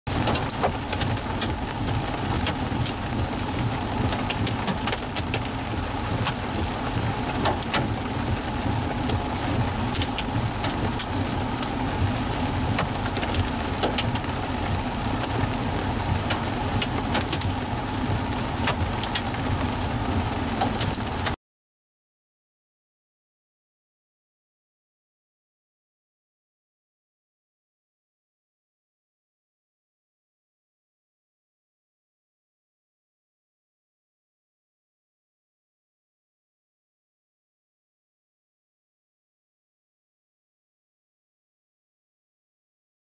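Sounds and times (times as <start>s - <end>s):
heavy rain: 0.1s - 21.4s.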